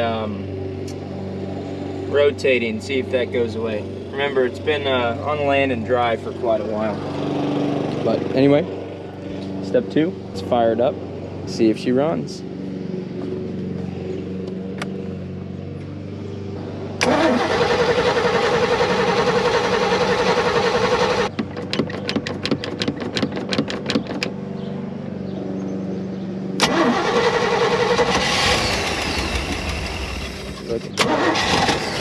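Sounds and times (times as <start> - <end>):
engine cranking by starter: 17.0 - 24.3, 26.6 - 32.0
engine popping: 17.0 - 24.4, 26.6 - 32.0.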